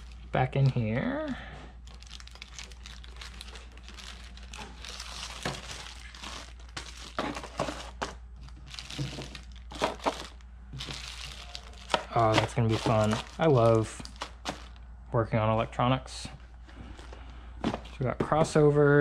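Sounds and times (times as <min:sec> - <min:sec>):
plastic bags crinkling: 0:00.0 - 0:01.2, 0:01.8 - 0:14.8
packing into cardboard box: 0:03.1 - 0:14.7.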